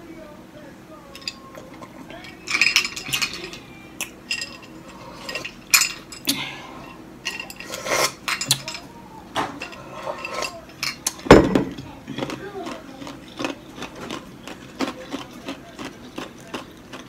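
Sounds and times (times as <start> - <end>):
cutlery clinking on plate: 7.3 - 8.8.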